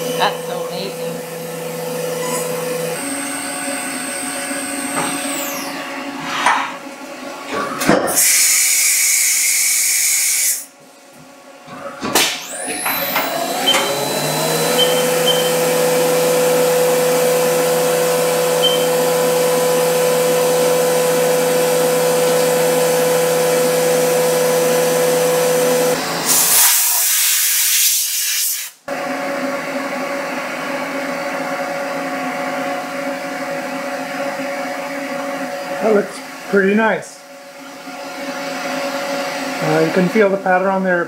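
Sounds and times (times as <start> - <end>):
milling machine spindle whine: 0.0 - 6.2, 12.4 - 26.5
loud coolant hiss: 8.1 - 10.7, 26.3 - 28.8.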